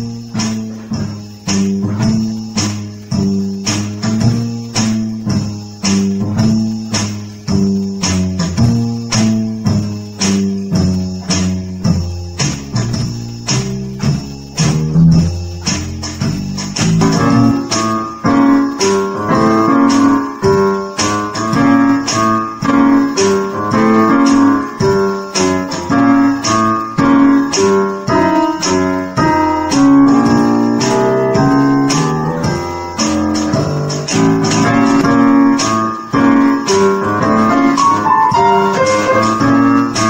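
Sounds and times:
keyboard bass line: 0:00.0 - 0:40.0
steady percussion beat: 0:00.0 - 0:40.0
keyboard melody notes: 0:08.5 - 0:40.0.

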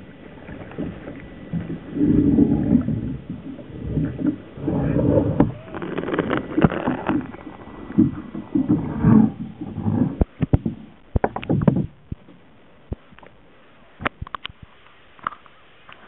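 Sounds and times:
underwater water sloshing: 0:00.0 - 0:16.0
sharp clicks and knocks: 0:09.8 - 0:13.4.

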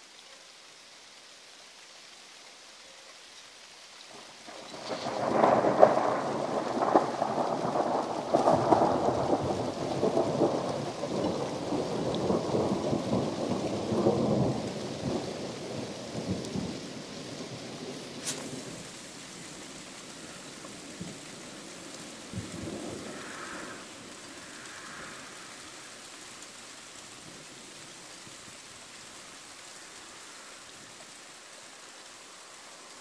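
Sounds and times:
rain falling: 0:00.0 - 0:33.0
thunder rumbling and cracking: 0:04.5 - 0:19.6, 0:20.6 - 0:25.7.

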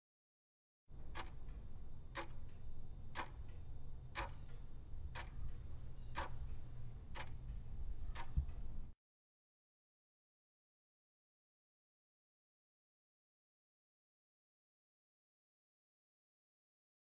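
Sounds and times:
clock ticking: 0:00.9 - 0:09.0
steady low hum: 0:00.9 - 0:09.0.

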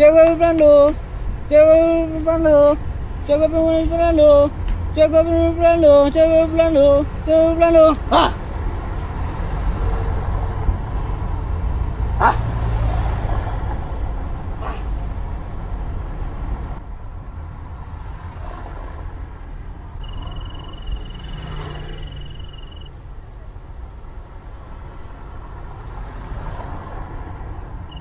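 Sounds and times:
street traffic rumble: 0:00.0 - 0:28.0
short sharp cry: 0:12.2 - 0:12.5
warbling electronic tone: 0:20.0 - 0:22.9.

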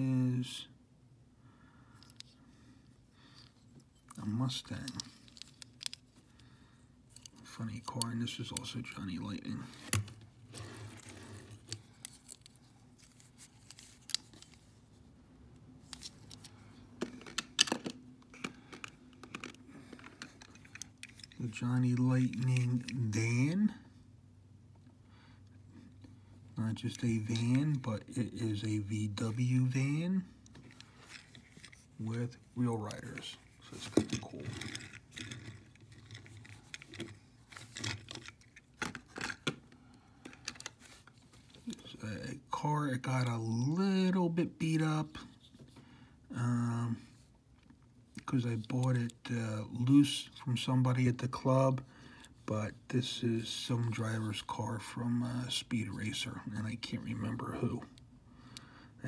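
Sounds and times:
toy car parts clicking: 0:33.1 - 0:39.6.

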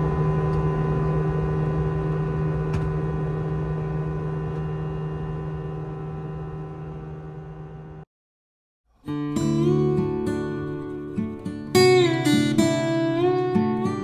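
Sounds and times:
steady hum tones: 0:00.0 - 0:08.0
airplane cabin drone: 0:00.0 - 0:08.1.

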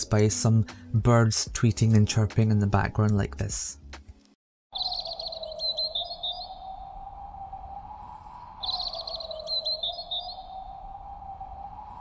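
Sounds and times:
bird trilling and chirping: 0:04.7 - 0:06.8, 0:08.6 - 0:10.7
whistling wind: 0:04.8 - 0:12.0.

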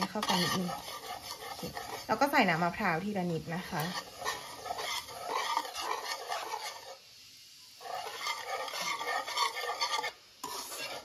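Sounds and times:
utensil stirring paste in bowl: 0:00.0 - 0:07.1, 0:07.8 - 0:11.0.

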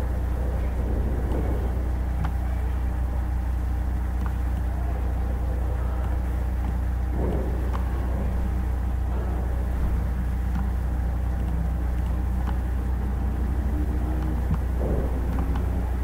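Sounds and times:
steady low hum: 0:00.0 - 0:16.0
faint clicks: 0:04.1 - 0:04.8, 0:09.9 - 0:12.8, 0:14.1 - 0:15.8.

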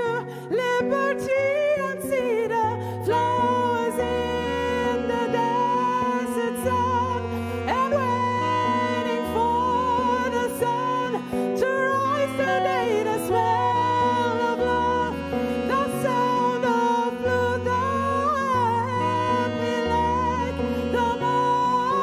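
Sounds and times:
guitar chords: 0:00.0 - 0:22.0
woman singing wordless melody: 0:00.0 - 0:22.0.

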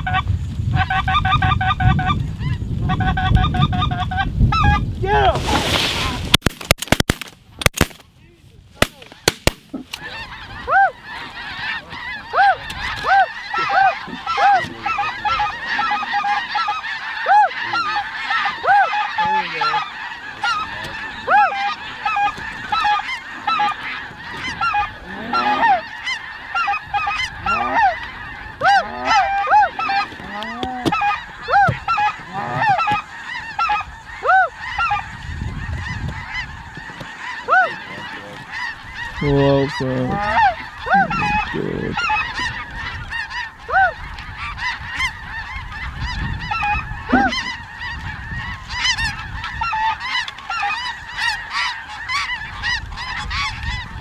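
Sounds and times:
flock of geese honking: 0:00.0 - 0:06.2, 0:08.8 - 0:54.0
shotgun shots: 0:06.4 - 0:08.0, 0:08.8 - 0:09.8.

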